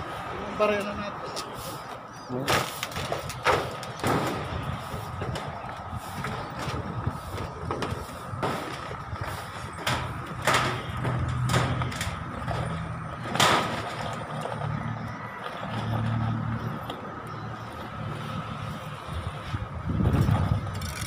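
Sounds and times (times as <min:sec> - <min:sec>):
roofing knocks and clanks: 0:02.5 - 0:14.8.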